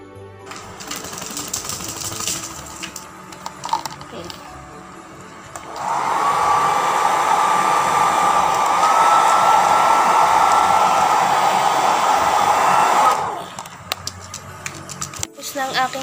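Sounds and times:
blow dryer running: 0.5 - 14.7.

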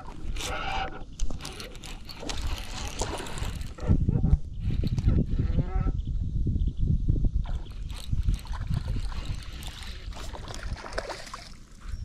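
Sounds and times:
fishing reel and line noise: 0.0 - 3.9, 7.5 - 11.9
wind buffeting: 0.0 - 12.0.

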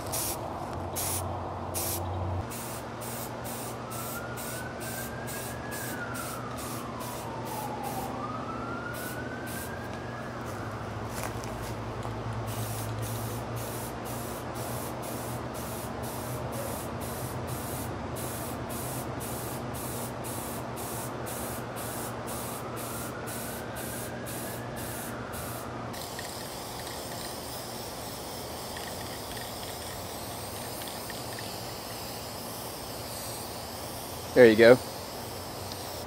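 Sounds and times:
spray paint can hissing: 0.0 - 0.4, 1.0 - 8.0, 12.4 - 36.0.

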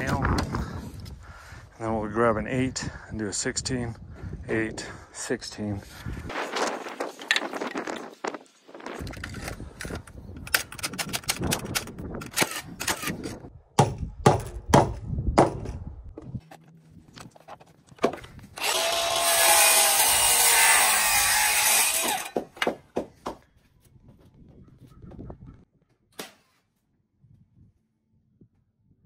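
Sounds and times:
power saw cutting board: 18.6 - 22.5
lumber knocking and clattering: 22.3 - 23.4.

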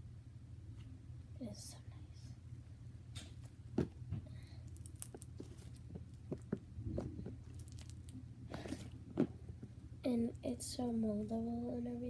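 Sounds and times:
squishy slime kneading: 3.4 - 10.5.

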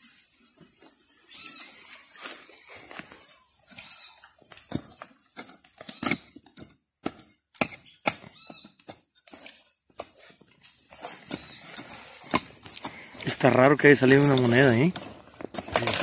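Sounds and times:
high insect drone: 0.0 - 6.3
hand digger chopping soil: 4.5 - 13.3, 14.0 - 16.0.

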